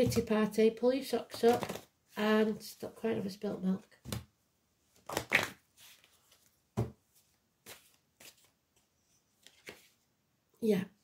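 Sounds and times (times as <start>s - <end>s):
cards being shuffled: 1.3s - 1.9s, 5.0s - 6.5s, 7.6s - 10.0s.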